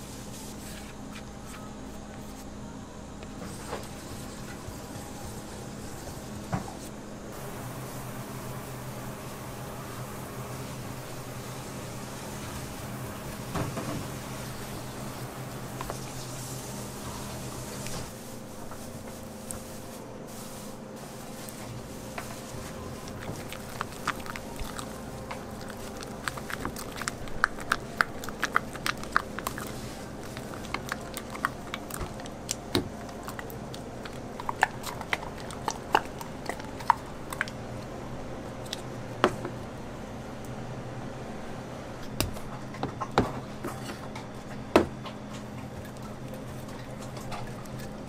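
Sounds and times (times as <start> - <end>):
faint steady hum: 0.0 - 48.0
spatula mixing frosting in a bowl: 18.8 - 37.9.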